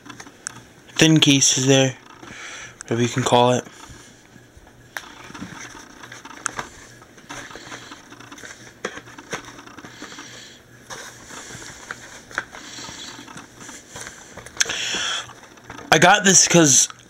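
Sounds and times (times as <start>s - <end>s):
plastic disc cases clicking: 4.9s - 16.0s
cardboard rustling: 5.0s - 16.6s.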